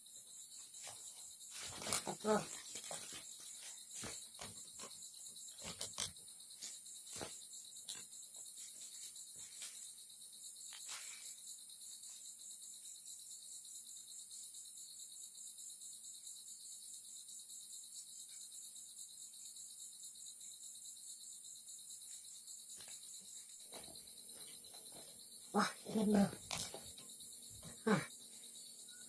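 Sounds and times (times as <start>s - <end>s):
night insects trilling: 0.0s - 29.0s.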